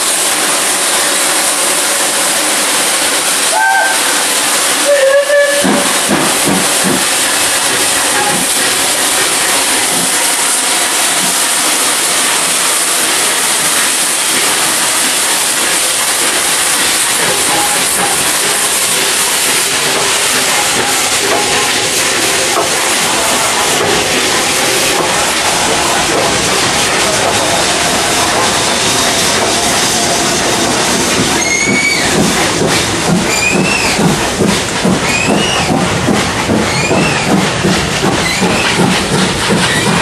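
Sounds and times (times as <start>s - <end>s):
steam hissing: 0.0s - 40.0s
train rolling by: 0.0s - 40.0s
steam whistle blast: 3.5s - 4.2s, 4.8s - 5.9s, 31.4s - 32.2s.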